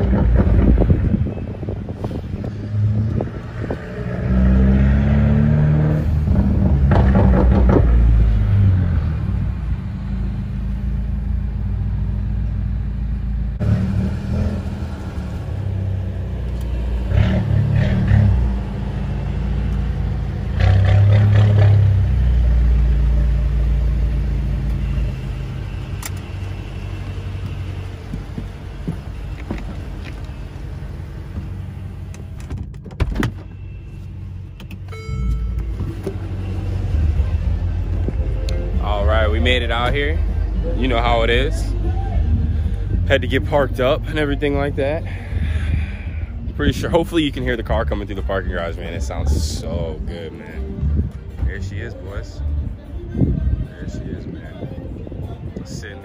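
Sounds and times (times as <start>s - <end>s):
car engine revving: 0.0s - 32.5s.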